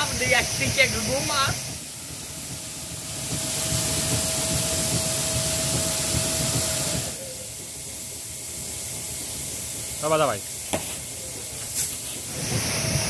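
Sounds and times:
grain pouring hiss: 0:08.7 - 0:13.0.

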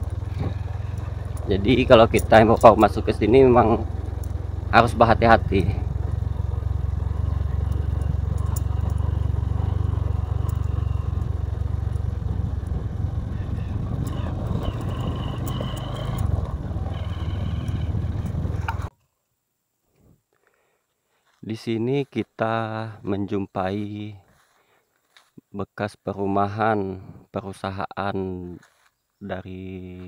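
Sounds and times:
motorcycle engine running: 0:00.0 - 0:18.9.

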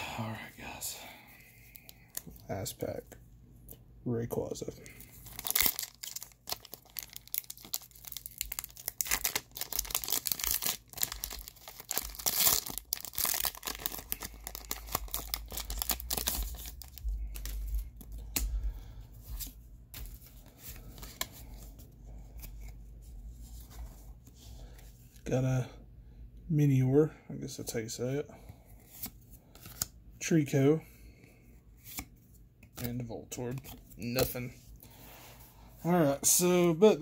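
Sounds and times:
cards rustling: 0:04.7 - 0:18.6, 0:19.2 - 0:22.8
foil wrapper tearing and crinkling: 0:05.2 - 0:17.5.

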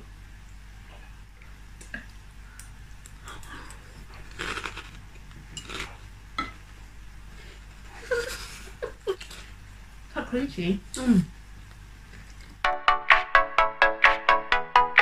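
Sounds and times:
cereal crunching: 0:03.4 - 0:06.0.

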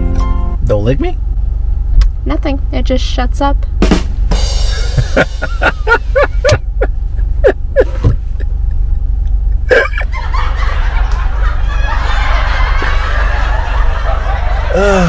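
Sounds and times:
steady low rumble: 0:00.0 - 0:14.8
person laughing: 0:04.6 - 0:11.9, 0:12.6 - 0:15.0.

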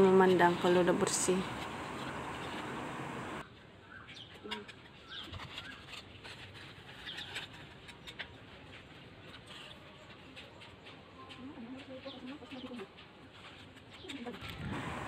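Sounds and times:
birds chirping: 0:00.0 - 0:05.8.

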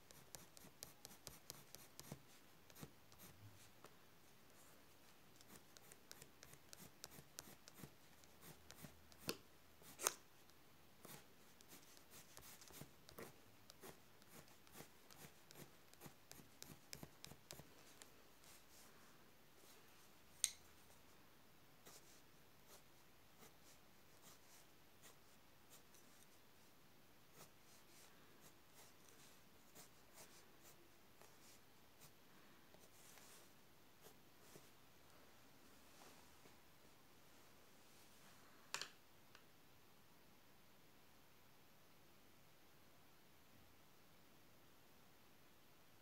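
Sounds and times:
pencil scratching on paper: 0:00.0 - 0:03.7, 0:05.4 - 0:10.1, 0:11.0 - 0:18.6.

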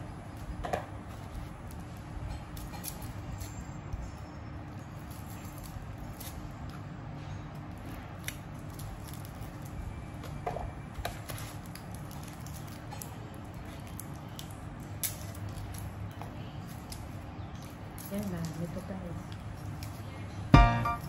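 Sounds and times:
steady low hum: 0:19.4 - 0:21.0.

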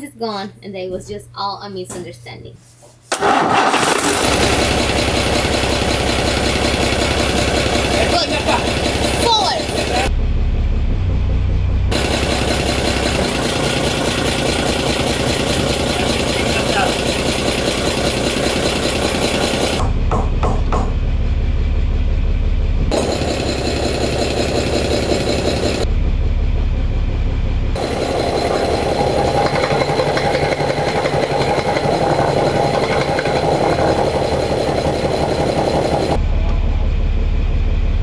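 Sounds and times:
marine diesel engine running: 0:03.2 - 0:38.0.

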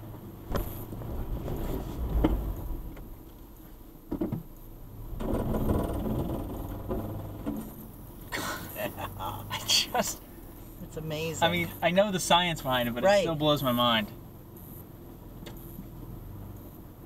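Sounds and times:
truck engine under load: 0:00.0 - 0:10.9.

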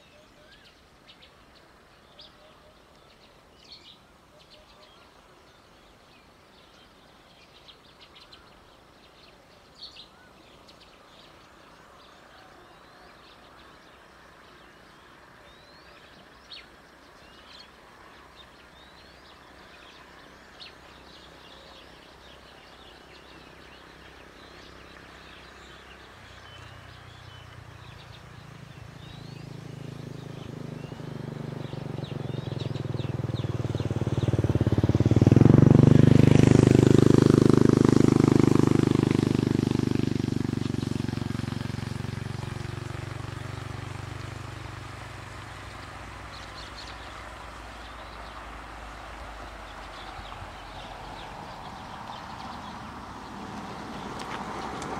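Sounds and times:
small birds chirping: 0:00.0 - 0:54.9
vehicle engine approaching: 0:22.2 - 0:54.9.

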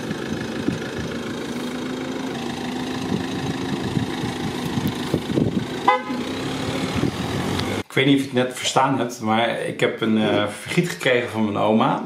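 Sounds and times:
car engine idling: 0:00.0 - 0:07.8.

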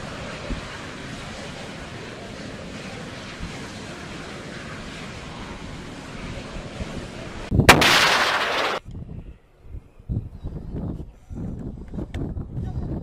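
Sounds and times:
fire rushing: 0:00.0 - 0:08.8
explosion: 0:07.7 - 0:08.8.

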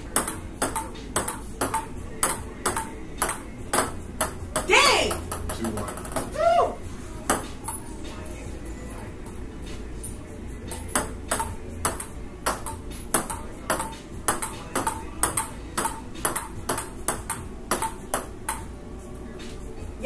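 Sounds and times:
ping-pong ball clicking: 0:00.1 - 0:06.3, 0:07.3 - 0:07.8, 0:10.7 - 0:18.7.

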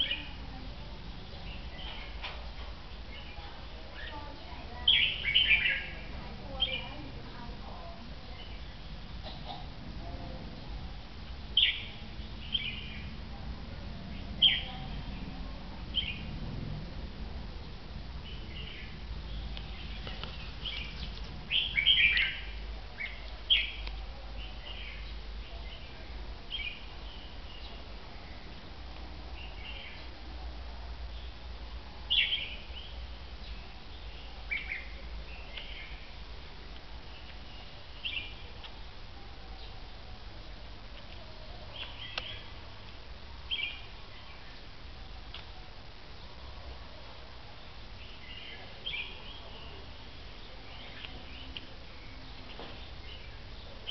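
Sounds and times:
birds chirping: 0:00.0 - 0:16.9, 0:17.6 - 0:30.3, 0:31.0 - 0:53.9
low background hum: 0:00.0 - 0:53.9.

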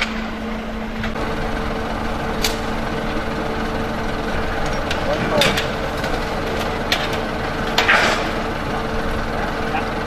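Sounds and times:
truck diesel engine running: 0:00.0 - 0:10.0.

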